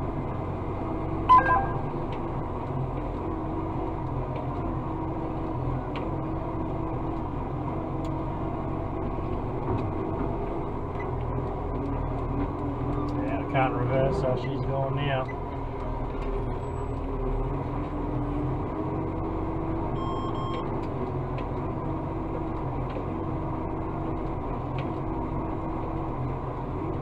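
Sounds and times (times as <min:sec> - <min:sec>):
truck engine drone: 0:00.0 - 0:27.0
short beep: 0:01.3 - 0:02.1, 0:20.0 - 0:20.6.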